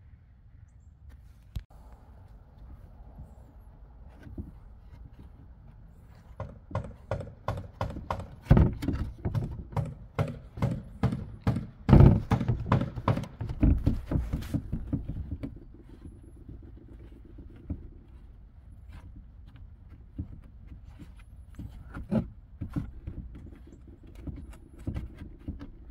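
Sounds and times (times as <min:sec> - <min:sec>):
sharp knocks: 0:06.2 - 0:15.7.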